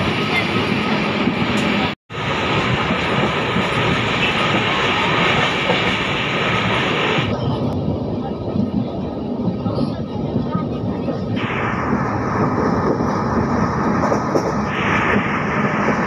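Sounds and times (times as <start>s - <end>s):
train rumbling on rails: 0.0s - 16.0s.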